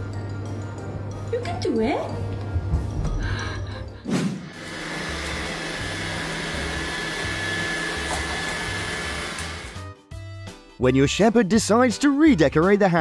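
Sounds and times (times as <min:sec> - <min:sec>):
robot vacuum whirring: 0:04.6 - 0:09.8.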